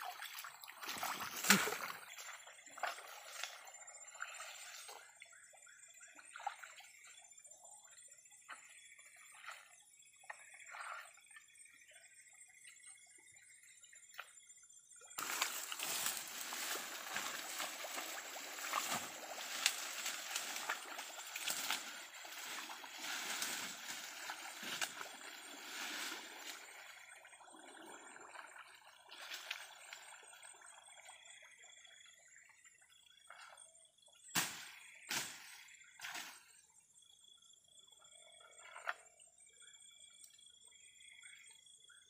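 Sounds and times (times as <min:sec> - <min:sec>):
water splashing and sloshing: 0:00.0 - 0:07.5, 0:15.2 - 0:31.8.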